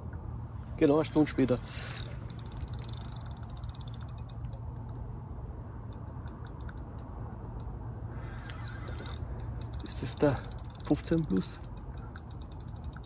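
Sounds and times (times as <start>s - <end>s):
fishing reel clicking: 1.0s - 5.0s, 8.2s - 13.0s.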